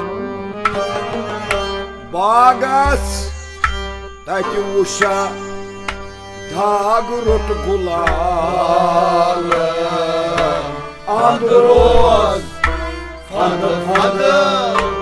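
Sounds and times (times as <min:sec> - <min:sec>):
plucked lute notes: 0:00.0 - 0:15.0
steady drone: 0:00.0 - 0:15.0
deep percussion strokes: 0:07.3 - 0:14.1.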